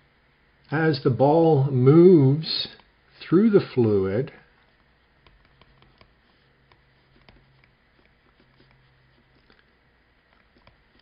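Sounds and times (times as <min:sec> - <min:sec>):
faint low hum: 0:00.0 - 0:11.0
stylus tapping on tablet: 0:04.7 - 0:09.5.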